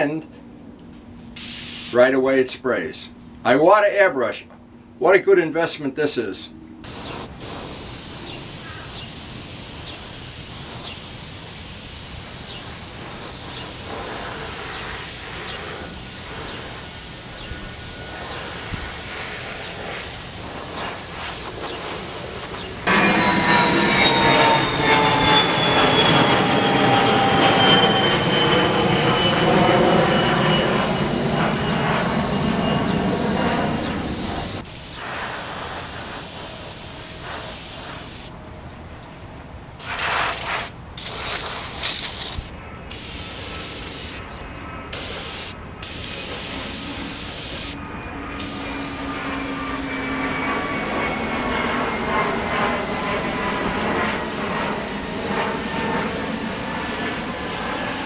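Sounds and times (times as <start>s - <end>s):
rumbling noise with falling whines: 6.6s - 34.8s, 45.6s - 58.0s
airbrush hissing: 6.9s - 25.3s, 30.0s - 38.3s, 39.8s - 44.2s, 45.0s - 53.6s, 54.2s - 55.5s.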